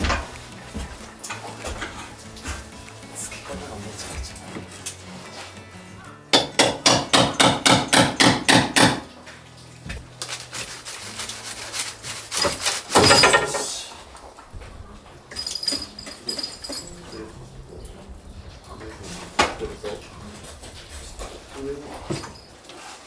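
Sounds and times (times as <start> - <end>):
wood scraping: 0.0 - 6.0, 9.9 - 15.3, 16.2 - 23.0
hammer striking wood: 6.3 - 9.1.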